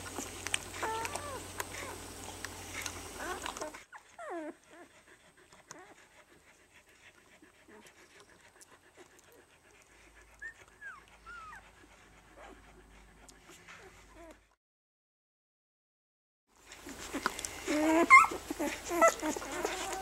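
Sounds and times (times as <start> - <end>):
puppies suckling clicks: 0.0 - 4.3, 5.1 - 11.8, 13.2 - 13.9, 16.7 - 20.0
puppies squeaking and whimpering: 0.1 - 2.1, 2.7 - 4.9, 10.4 - 11.7, 16.8 - 20.0.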